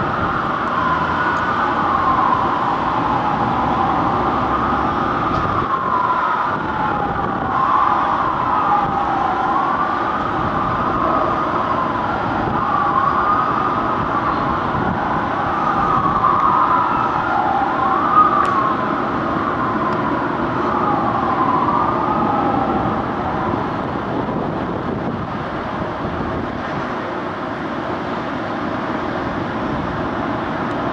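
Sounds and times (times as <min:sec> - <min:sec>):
fire engine sirens wailing: 0:00.0 - 0:30.9
low rumble of traffic: 0:00.0 - 0:30.9.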